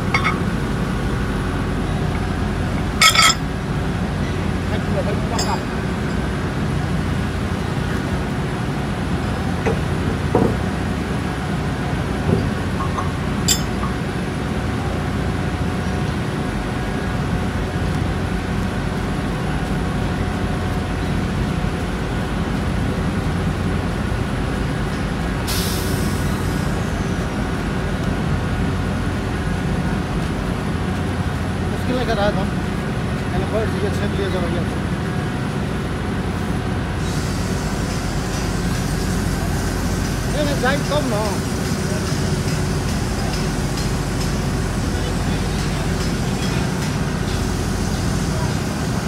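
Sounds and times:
air hissing out: 0:25.5 - 0:27.2, 0:37.0 - 0:49.0.

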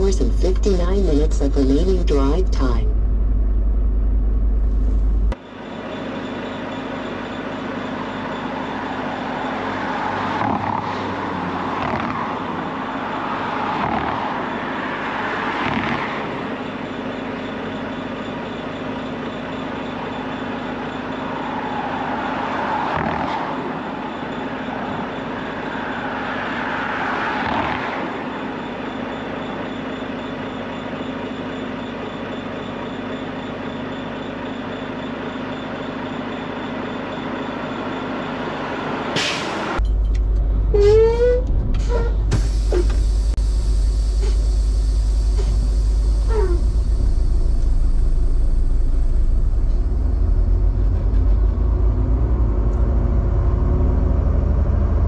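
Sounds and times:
heavy truck idling: 0:00.0 - 0:10.4, 0:16.2 - 0:27.2, 0:28.0 - 0:52.8
truck passing with low rumble: 0:06.9 - 0:17.9, 0:20.0 - 0:30.3, 0:37.1 - 0:55.0
air brake hiss: 0:39.2 - 0:39.6, 0:42.3 - 0:43.4.

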